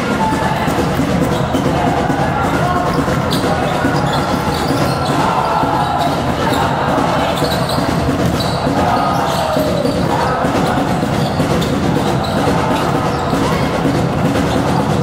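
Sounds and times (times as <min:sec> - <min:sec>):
voices: 0:00.0 - 0:15.0
basketball bouncing on floor: 0:07.4 - 0:10.0.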